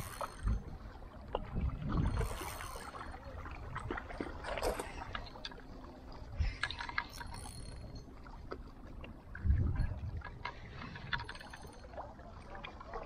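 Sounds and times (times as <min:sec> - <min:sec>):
small waves lapping on rocks: 0:00.0 - 0:13.0
wind buffeting microphone: 0:00.4 - 0:02.5, 0:09.3 - 0:11.3.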